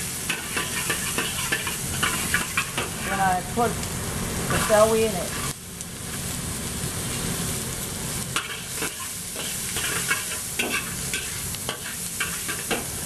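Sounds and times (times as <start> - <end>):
vegetables sizzling in oil: 0.0 - 13.0
metal spatula scraping a wok: 0.2 - 3.2, 4.5 - 5.6, 8.4 - 13.0.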